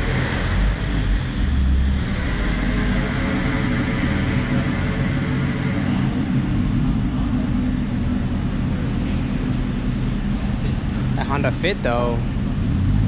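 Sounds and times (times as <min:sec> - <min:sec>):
car engine rumble echoing: 0:00.0 - 0:13.0.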